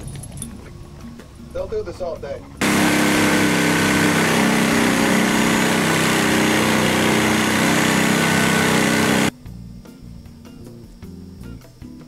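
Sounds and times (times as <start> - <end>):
reciprocating saw cutting metal bolt: 2.6 - 9.3.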